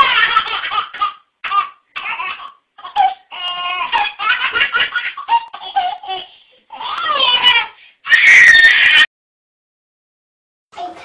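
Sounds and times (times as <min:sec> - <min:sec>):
baby laughing: 0:00.0 - 0:08.3.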